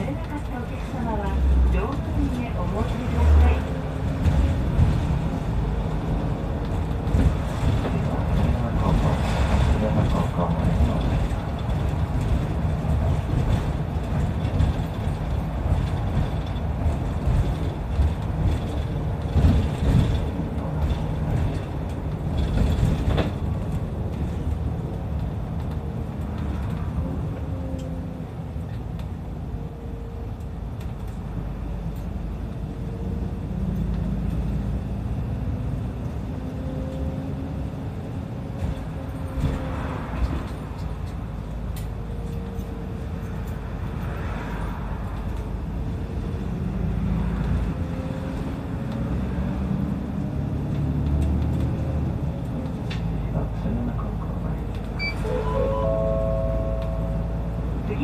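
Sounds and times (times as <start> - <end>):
bus engine and road rumble: 0.0 - 58.0
body knocks and rattles: 4.0 - 26.8.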